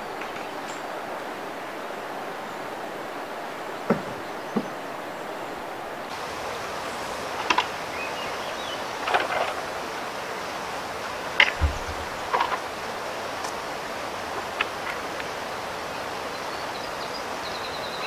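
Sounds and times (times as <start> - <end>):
river rushing over riffle: 4.8 - 18.0
short sharp knocks: 11.4 - 12.6.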